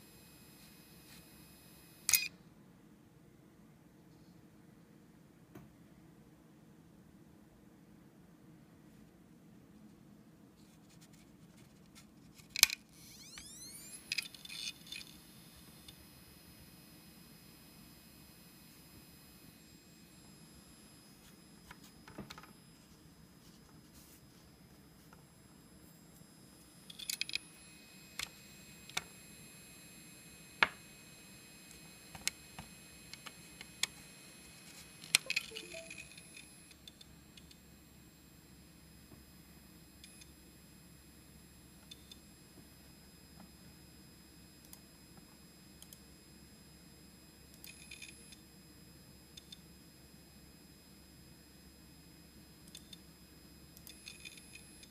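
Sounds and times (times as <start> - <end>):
spindle motor whine: 12.9 - 48.6.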